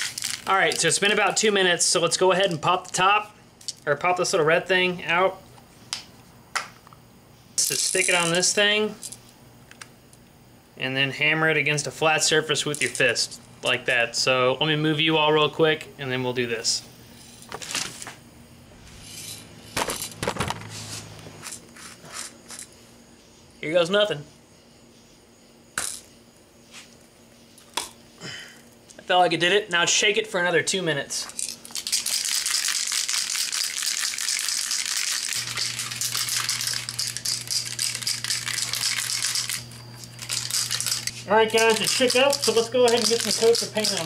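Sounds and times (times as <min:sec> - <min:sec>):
aerosol can ball rattling: 0:31.6 - 0:44.0.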